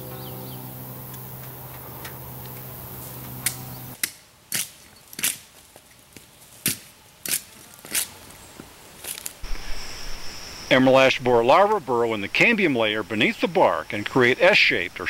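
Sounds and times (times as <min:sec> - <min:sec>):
steady low hum: 0:00.0 - 0:04.0.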